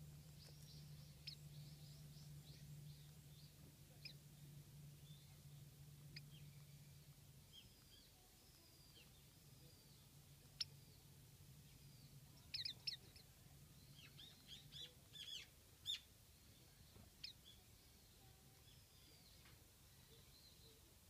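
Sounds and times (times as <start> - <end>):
bird high thin chirps: 11.8 - 16.1, 17.1 - 20.8.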